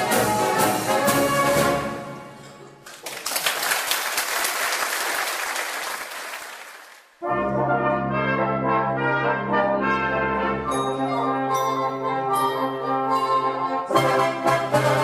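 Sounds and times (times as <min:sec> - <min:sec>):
brass band playing: 0:00.0 - 0:02.4, 0:07.2 - 0:15.0
audience applause: 0:02.8 - 0:07.2.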